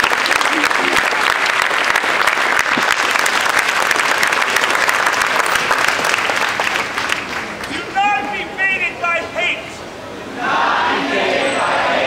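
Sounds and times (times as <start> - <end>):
large crowd applauding: 0.0 - 7.9.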